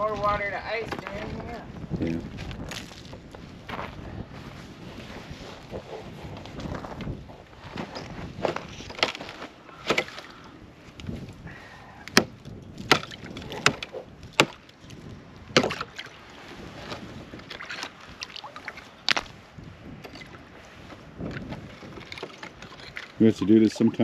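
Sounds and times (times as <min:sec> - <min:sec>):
ice being struck and cracking: 0:12.1 - 0:14.7.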